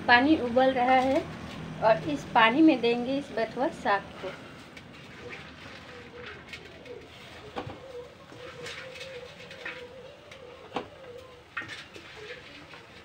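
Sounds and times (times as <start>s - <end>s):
leaves rustling: 4.0s - 13.0s.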